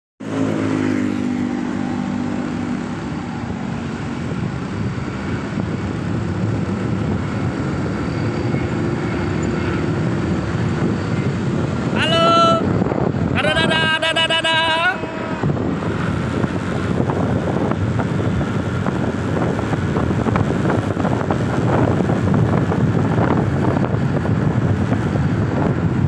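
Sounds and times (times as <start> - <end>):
motorcycle engine running: 0.2 - 26.0
wind rush and road noise: 0.2 - 26.0.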